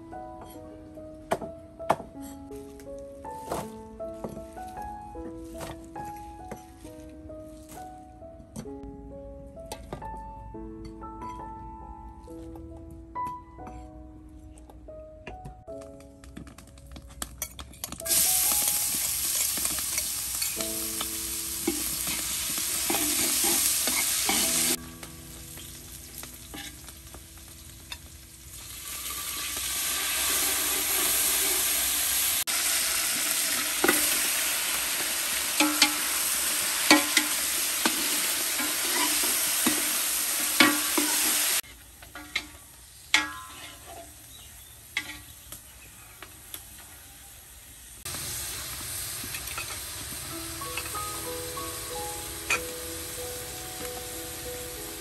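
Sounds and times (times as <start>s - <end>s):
meat sizzling in hot oil: 18.0s - 41.6s, 46.4s - 55.0s.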